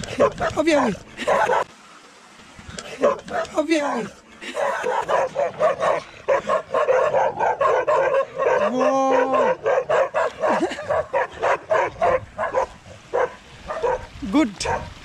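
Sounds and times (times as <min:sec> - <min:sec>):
dog barking aggressively: 0:00.1 - 0:01.7, 0:02.9 - 0:03.6, 0:04.5 - 0:14.9
dog drawn-out cry: 0:02.9 - 0:14.9.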